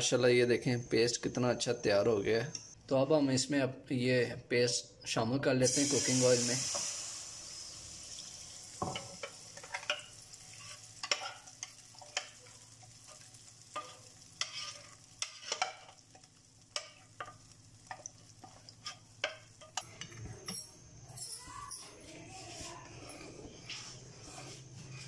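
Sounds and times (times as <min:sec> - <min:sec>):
batter frying in oil: 0:05.6 - 0:20.2
batter poured into oil: 0:05.7 - 0:16.6
wooden spatula stirring: 0:08.9 - 0:20.3.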